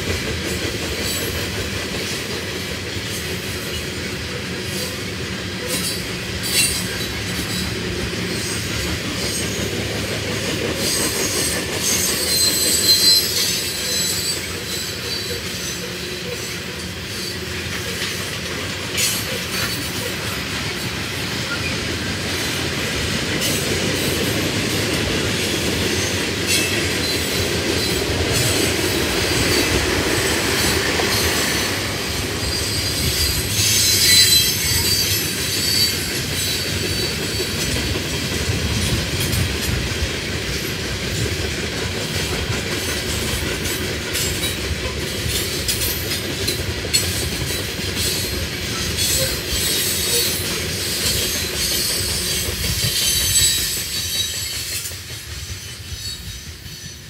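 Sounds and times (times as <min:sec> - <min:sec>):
freight train rumbling: 0:00.0 - 0:57.0
wheels clacking over rail joints: 0:00.0 - 0:57.0
high-pitched wheel squeal: 0:10.8 - 0:17.4, 0:32.4 - 0:37.2, 0:51.6 - 0:54.9.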